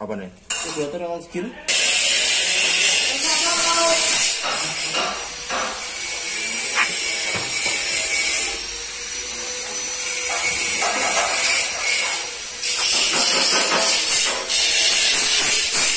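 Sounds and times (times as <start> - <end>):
welding gas hissing: 1.7 - 9.1, 10.0 - 15.9.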